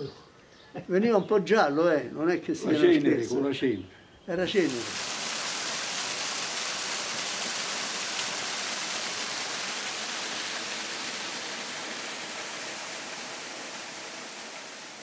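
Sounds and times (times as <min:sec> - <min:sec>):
stream running over stones: 0:04.4 - 0:15.0.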